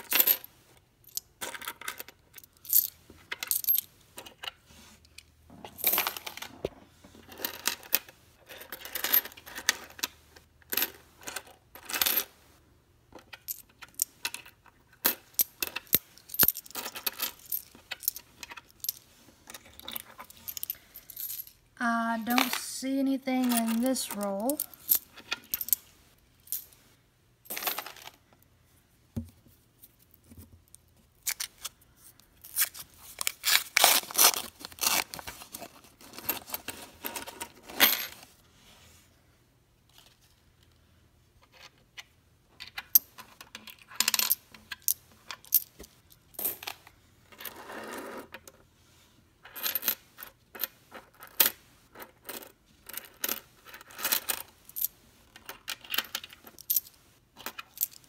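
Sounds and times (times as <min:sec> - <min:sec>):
coins clinking on wooden table: 0:00.0 - 0:04.3, 0:05.6 - 0:06.6, 0:07.2 - 0:12.3, 0:13.3 - 0:21.6, 0:27.5 - 0:28.2, 0:36.2 - 0:38.2, 0:42.6 - 0:48.4, 0:49.4 - 0:58.0.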